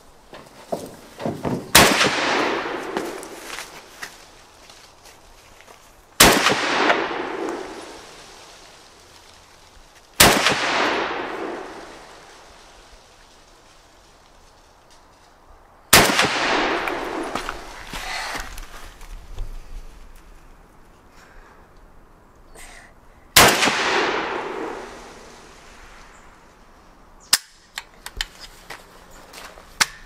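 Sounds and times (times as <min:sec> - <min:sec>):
rifle shots with echo: 0:01.7 - 0:03.4, 0:06.2 - 0:08.0, 0:10.2 - 0:12.3, 0:15.9 - 0:17.7, 0:23.4 - 0:25.2.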